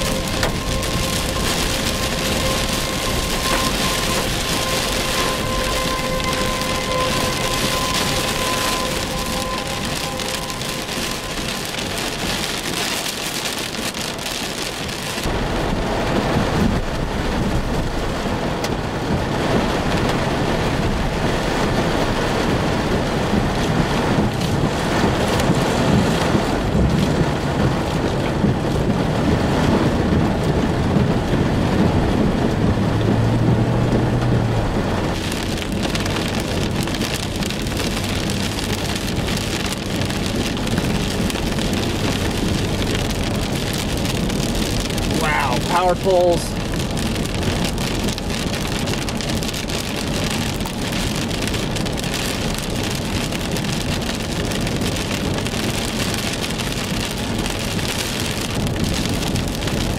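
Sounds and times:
heavy rain on car roof: 0:00.0 - 0:59.9
tyres rushing through water: 0:00.0 - 0:59.9.

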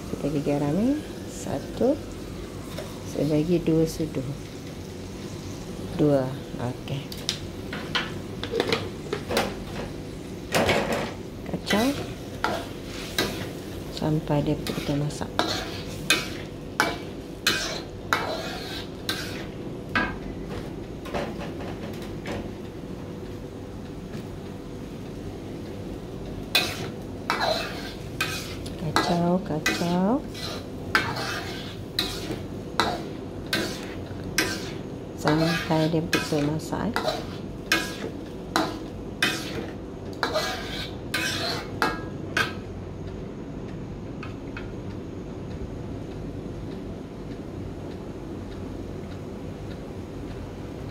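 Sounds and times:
metal ladle scraping a wok: 0:14.6 - 0:19.5, 0:26.5 - 0:42.5.

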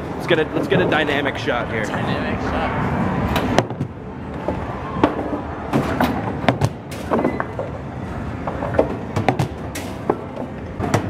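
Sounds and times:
balls rolling and clacking: 0:03.4 - 0:11.0.

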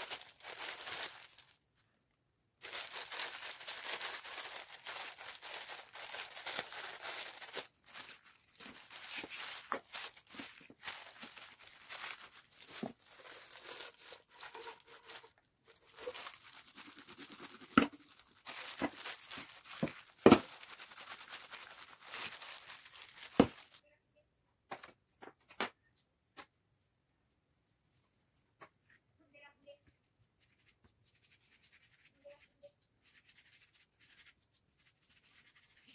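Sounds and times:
plastic gloves crinkling: 0:00.0 - 0:01.9, 0:02.6 - 0:23.8.

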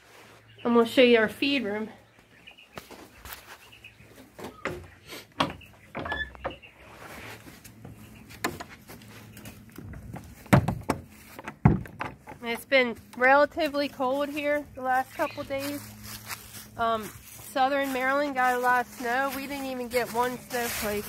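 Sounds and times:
footsteps: 0:02.2 - 0:21.0
heavy thuds: 0:09.8 - 0:12.4
knocks and clicks: 0:09.8 - 0:12.6.

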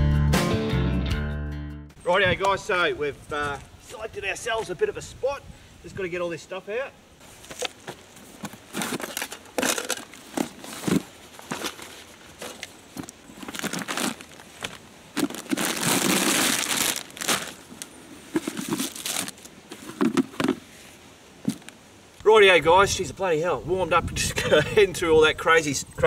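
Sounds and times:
canvas bags rustling: 0:07.2 - 0:21.7
plastic snack packets crinkling: 0:10.8 - 0:19.5.

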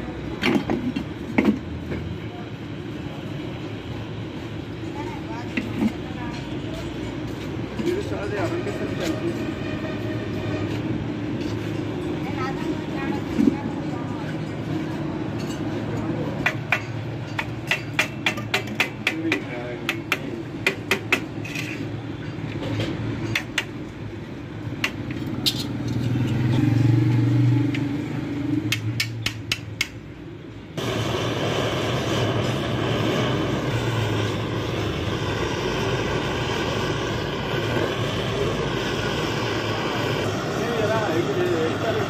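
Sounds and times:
steady mechanical drone: 0:00.0 - 0:42.0
hand tools tapping metal: 0:15.4 - 0:21.8, 0:23.2 - 0:23.8, 0:28.7 - 0:30.0.

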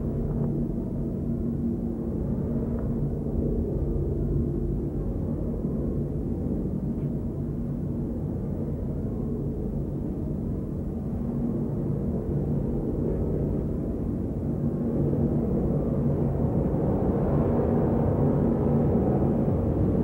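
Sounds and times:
low rumbling drone: 0:00.0 - 0:20.0.

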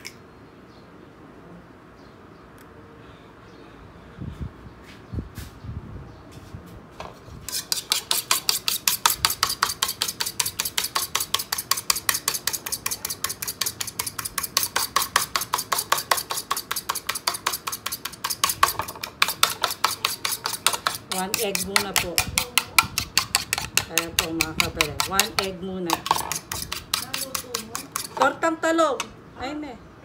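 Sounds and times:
utensil clinking against bowl: 0:07.5 - 0:28.4.

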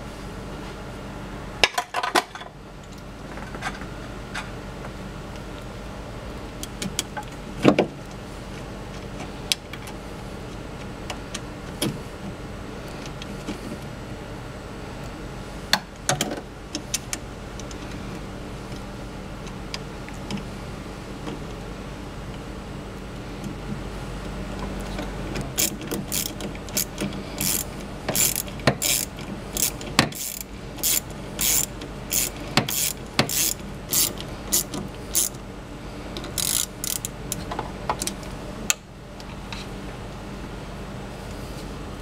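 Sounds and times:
steady low hum: 0:00.0 - 0:42.0
clicks and knocks of pump parts: 0:24.6 - 0:35.4.

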